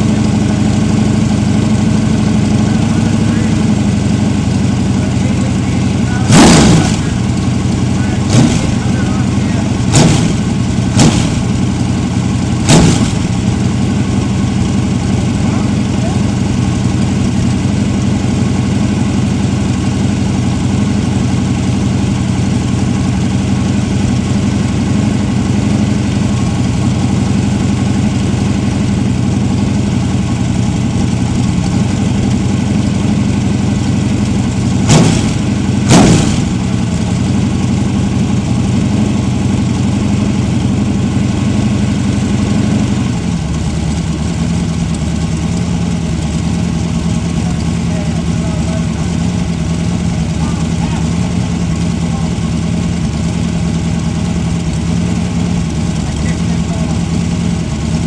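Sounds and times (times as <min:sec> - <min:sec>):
vee eight engine idling: 0:00.0 - 0:58.0
engine revving blips: 0:06.0 - 0:12.0, 0:12.6 - 0:13.9, 0:34.7 - 0:37.1.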